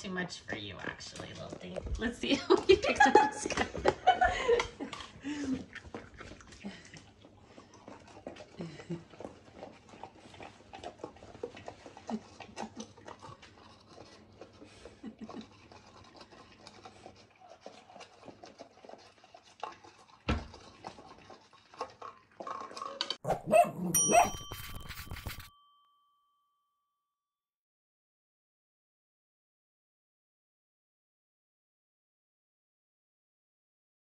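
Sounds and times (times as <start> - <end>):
dog licking and lapping: 0.8 - 25.5
jingle with bright ding: 23.8 - 27.1.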